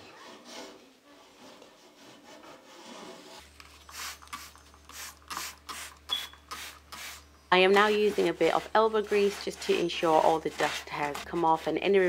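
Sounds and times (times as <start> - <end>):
sponge scrubbing on radiator: 6.6 - 12.0.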